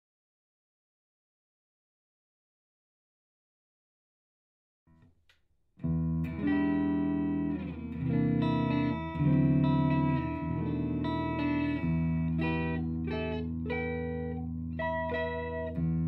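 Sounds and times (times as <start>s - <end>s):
electric guitar chords ringing: 5.8s - 16.0s.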